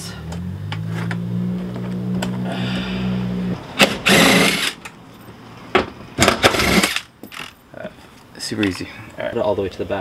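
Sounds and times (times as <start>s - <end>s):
cordless driver burst: 3.8s - 4.8s, 6.2s - 7.5s.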